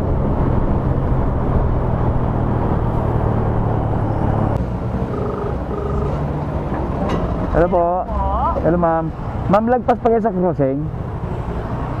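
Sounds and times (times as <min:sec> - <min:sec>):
wind and road noise: 0:00.0 - 0:12.0
short beeps: 0:05.1 - 0:06.2.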